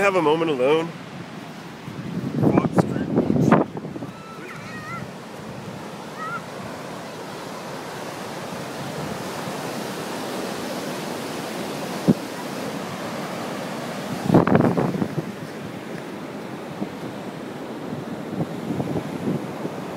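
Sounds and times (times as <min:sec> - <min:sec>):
ocean surf on a beach: 0:00.0 - 0:19.9.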